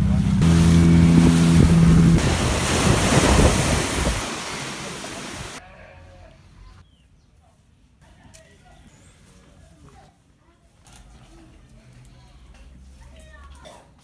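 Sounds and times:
outboard motor running: 0:00.0 - 0:04.8
rushing water and wind: 0:00.0 - 0:05.6.

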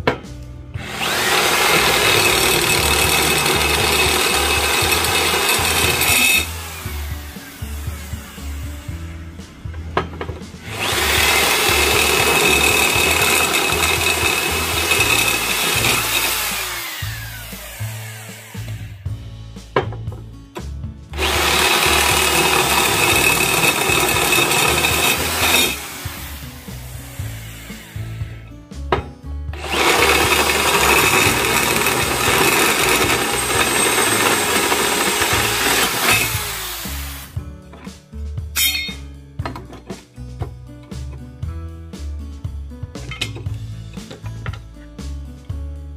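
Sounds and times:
electric drill whining through metal: 0:00.8 - 0:09.3, 0:10.6 - 0:19.2, 0:21.2 - 0:28.6, 0:29.5 - 0:37.4.

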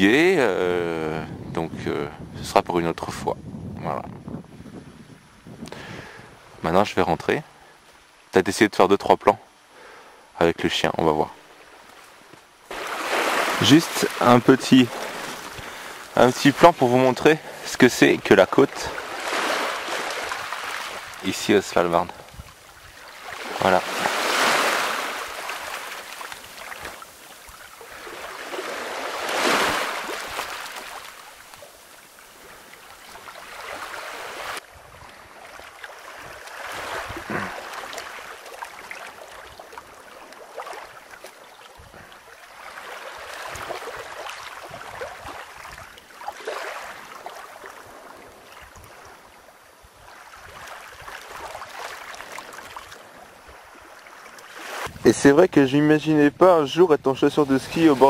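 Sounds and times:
waves washing over pebbles: 0:12.7 - 0:49.2.

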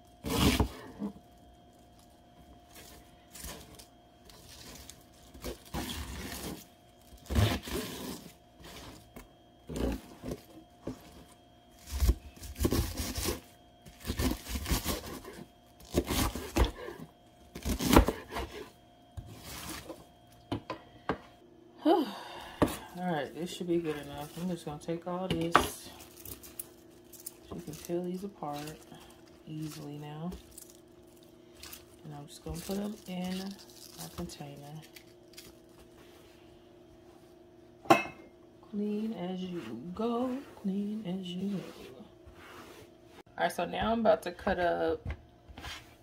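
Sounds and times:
knife crunching through cabbage: 0:00.2 - 0:01.2, 0:02.7 - 0:10.4, 0:11.8 - 0:20.0, 0:25.9 - 0:36.0.

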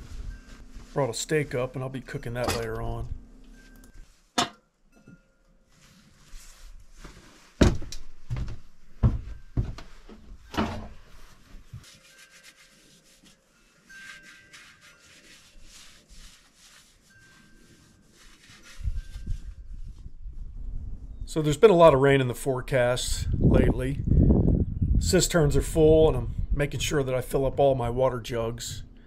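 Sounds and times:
faint rustling: 0:05.6 - 0:20.6
heavy thumps: 0:07.6 - 0:11.0.

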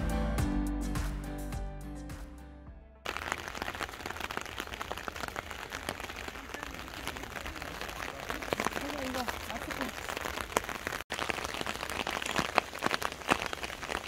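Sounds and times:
background music: 0:00.0 - 0:03.1
rain on wet pavement: 0:03.1 - 0:14.0.

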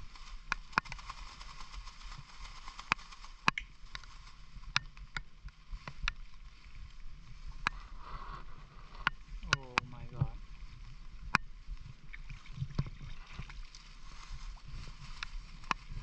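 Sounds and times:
steady hiss: 0:00.0 - 0:11.0
water splashing and sloshing: 0:08.5 - 0:16.0.

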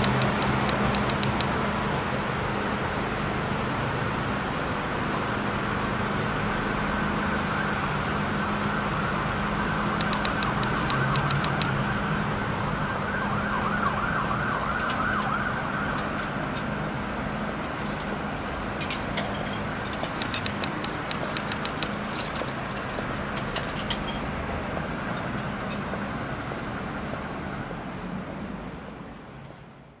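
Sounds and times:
quick clicks: 0:00.0 - 0:01.7, 0:10.0 - 0:11.8, 0:20.0 - 0:22.4
traffic noise: 0:00.0 - 0:30.0.

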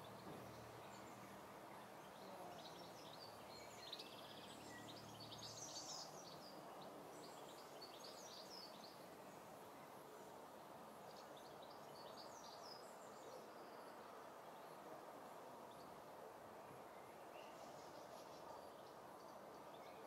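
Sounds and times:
background hiss: 0:00.0 - 0:20.0.

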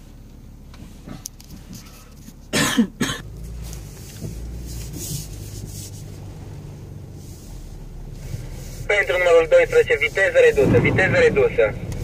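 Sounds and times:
car low hum: 0:00.0 - 0:12.0
person coughing: 0:02.5 - 0:03.2.

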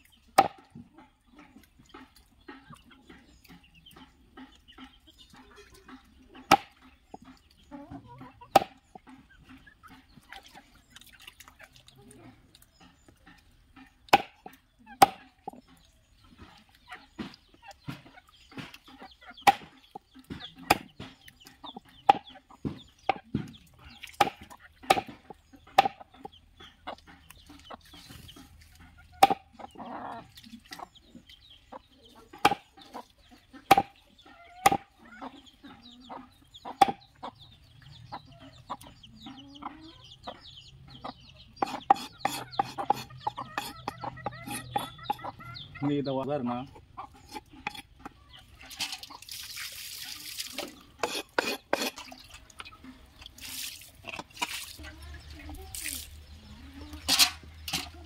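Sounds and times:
chickens clucking: 0:00.0 - 0:58.0
knife chopping on wooden block: 0:08.5 - 0:08.8, 0:14.1 - 0:14.4, 0:24.2 - 0:25.2, 0:25.8 - 0:26.0, 0:29.2 - 0:29.4, 0:33.7 - 0:33.9, 0:41.6 - 0:45.2.

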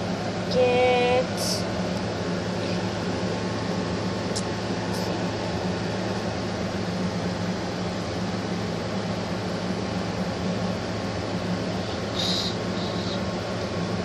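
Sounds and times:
fan humming and hissing: 0:00.0 - 0:14.0.

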